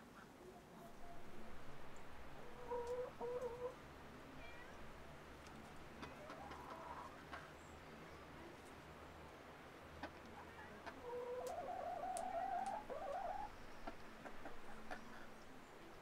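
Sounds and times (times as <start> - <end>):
low steady hum: 0.0 - 16.0
chicken calling: 2.3 - 3.8, 10.9 - 15.2
faint clicks: 5.4 - 6.7.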